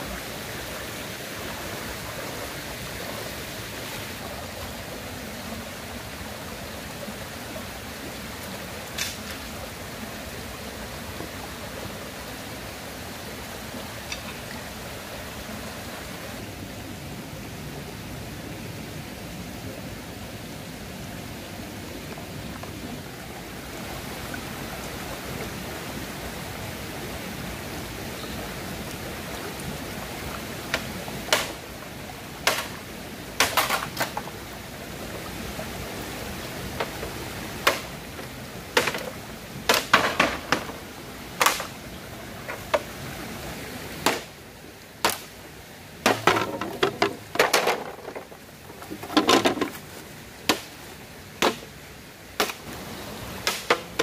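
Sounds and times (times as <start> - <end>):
stream water flowing: 0.0 - 54.0
bamboo poles knocking on stones: 9.0 - 9.4, 30.7 - 31.6, 32.4 - 32.8, 33.4 - 34.3, 36.7 - 37.0, 37.6 - 40.8, 41.4 - 41.8, 42.4 - 42.9, 44.0 - 44.3, 45.0 - 45.3, 46.0 - 49.8, 50.5 - 50.7, 51.4 - 51.7, 52.4 - 52.6, 53.4 - 54.0.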